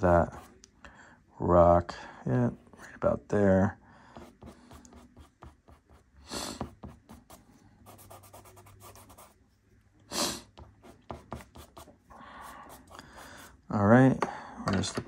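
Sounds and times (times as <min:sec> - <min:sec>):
person breathing: 0:00.8 - 0:01.3, 0:03.8 - 0:05.0, 0:06.2 - 0:06.7, 0:12.1 - 0:13.6, 0:14.2 - 0:14.6
pastel sticks scratching on paper: 0:04.2 - 0:09.5, 0:10.5 - 0:13.6.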